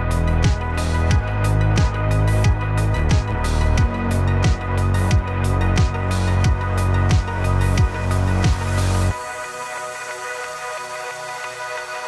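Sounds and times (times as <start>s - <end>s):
deep kick drum: 0.0s - 8.8s
sustained bass line: 0.0s - 9.4s.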